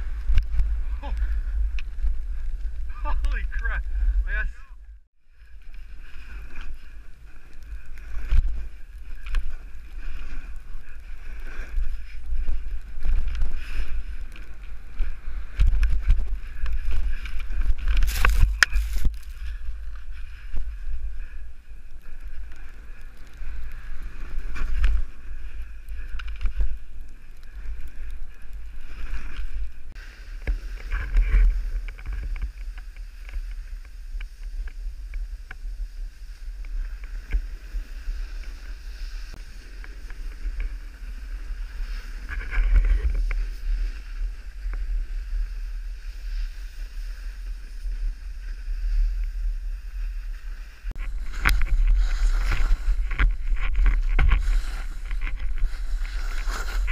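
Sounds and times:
wind buffeting microphone: 0.0s - 21.6s
snow sliding hiss and scrape: 0.0s - 56.9s.

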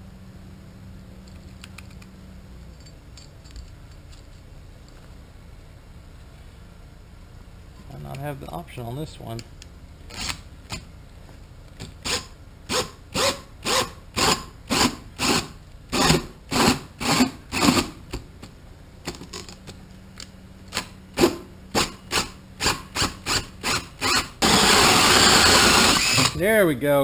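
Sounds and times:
cordless drill bursts: 12.0s - 17.9s, 21.8s - 26.4s.

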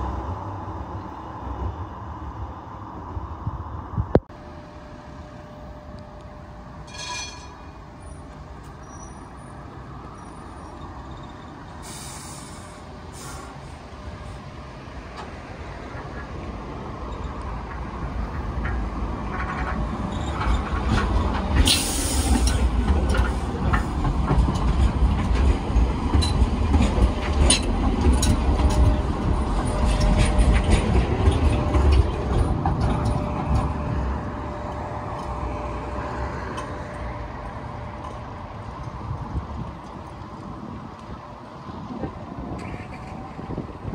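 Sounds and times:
tram rumble: 0.0s - 43.9s
brief hiss: 11.8s - 13.6s.

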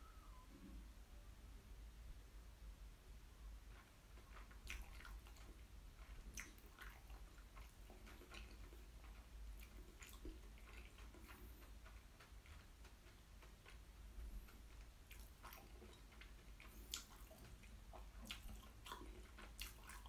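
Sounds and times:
low steady hum: 0.0s - 20.0s
chewing mouth clicks: 3.7s - 20.0s.

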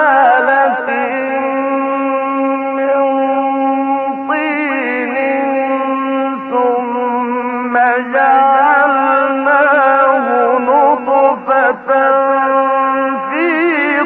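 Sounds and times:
man chanting melodically: 0.0s - 14.0s.

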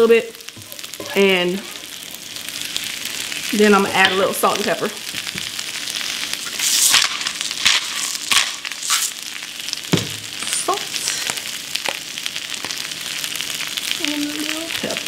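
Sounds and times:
spinach sizzling in butter: 0.0s - 15.0s
salt and pepper grinders grinding: 6.4s - 12.0s.

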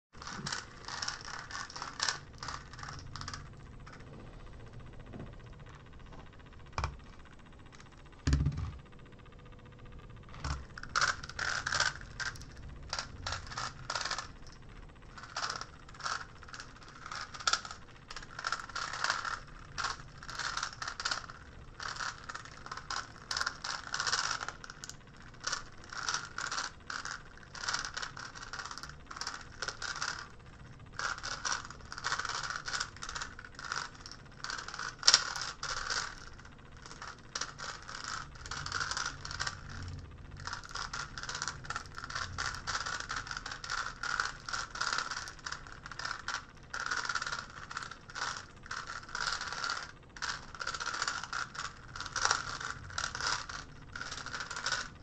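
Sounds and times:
plastic puzzle cube clicking: 0.2s - 3.0s, 15.2s - 30.2s, 31.0s - 39.7s, 40.5s - 54.9s.

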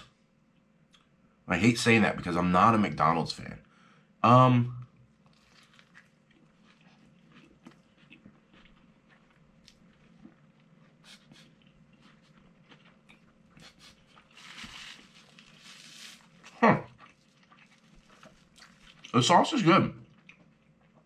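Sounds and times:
person chewing: 5.1s - 19.2s, 20.0s - 21.0s
soft rustle: 14.2s - 16.4s.

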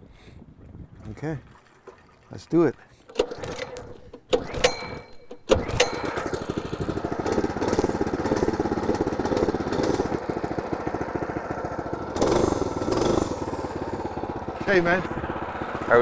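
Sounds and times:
engine pull-start clicks: 3.0s - 10.4s, 12.1s - 14.3s
small engine running: 3.1s - 16.0s.

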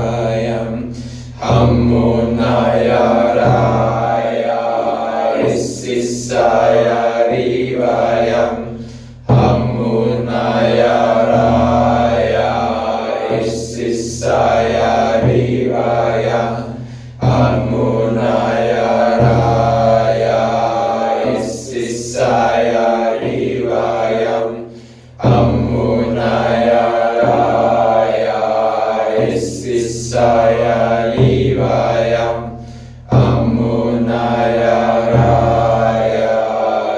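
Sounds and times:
low voice chanting: 0.0s - 36.9s
breathy hiss: 0.7s - 1.7s, 8.5s - 9.4s, 16.6s - 17.6s, 24.6s - 25.3s, 32.5s - 33.3s.

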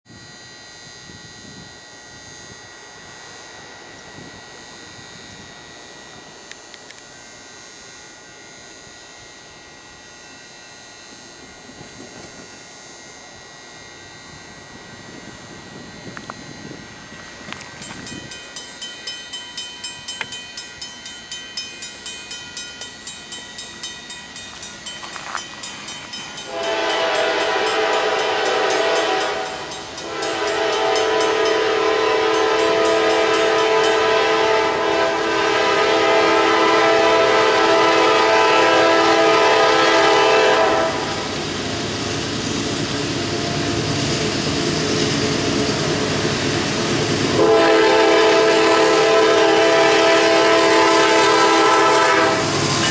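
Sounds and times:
crossing warning bell ringing: 0.1s - 42.2s, 43.0s - 52.9s
locomotive horn chord: 26.4s - 41.3s, 47.3s - 52.7s.

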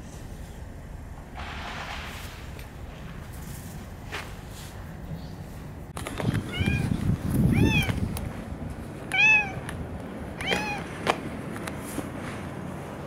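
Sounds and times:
cat meowing: 6.5s - 8.0s, 9.1s - 9.6s, 10.4s - 10.9s.

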